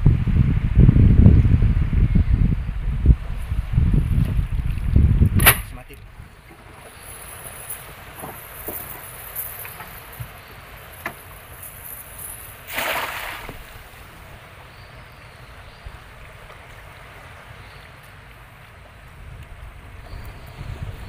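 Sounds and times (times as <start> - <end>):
net splashing into water: 12.6 - 13.8.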